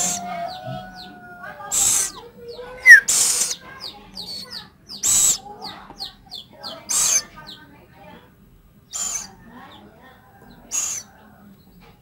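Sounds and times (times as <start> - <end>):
owl chicks rasping hiss calls: 0.0 - 7.4, 8.9 - 9.4, 10.6 - 11.2.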